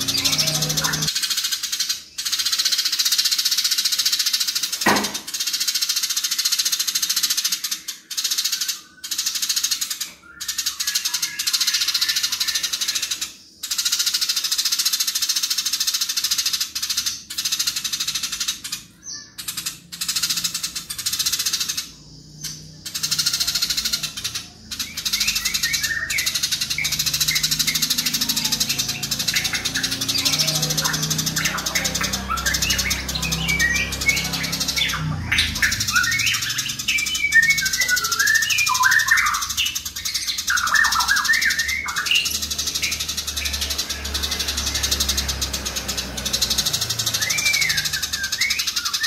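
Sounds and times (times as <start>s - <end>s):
sparrows chattering: 0.0s - 49.0s
brief knock: 4.9s - 5.3s.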